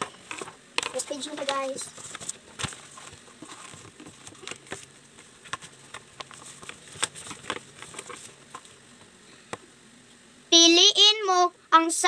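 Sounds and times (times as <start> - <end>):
paper workbook taps and rustles: 0.0 - 8.8.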